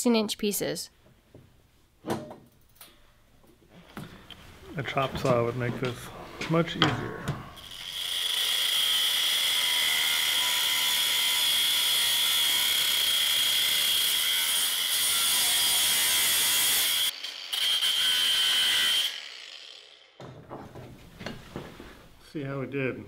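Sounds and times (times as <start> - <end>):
angle grinder cutting steel: 7.6 - 20.2.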